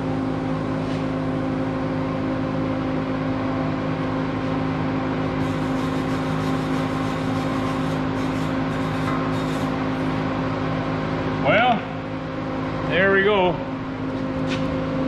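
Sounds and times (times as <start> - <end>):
machinery humming: 0.0 - 15.0.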